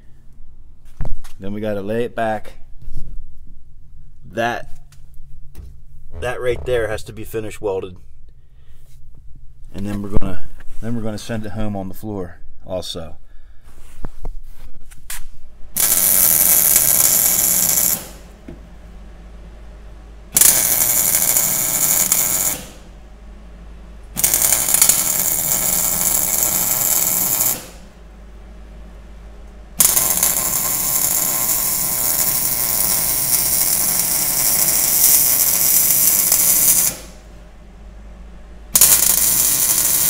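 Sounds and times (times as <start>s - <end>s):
welder arc crackling: 15.8s - 18.5s, 20.3s - 22.9s, 24.0s - 28.0s, 29.4s - 37.3s, 38.8s - 40.0s.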